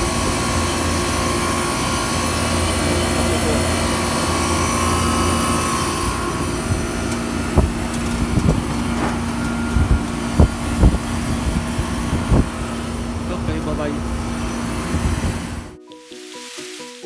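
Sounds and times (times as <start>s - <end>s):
air conditioner humming: 0.0s - 15.8s.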